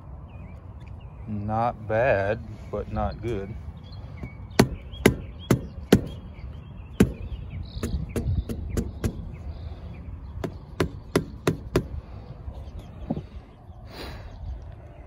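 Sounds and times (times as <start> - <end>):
air filter knocking against mower: 4.2 - 6.3, 7.0 - 9.4, 10.4 - 12.0.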